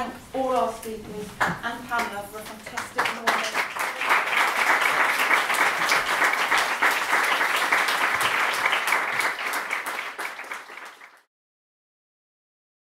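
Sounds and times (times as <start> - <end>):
audience applauding: 2.7 - 11.3.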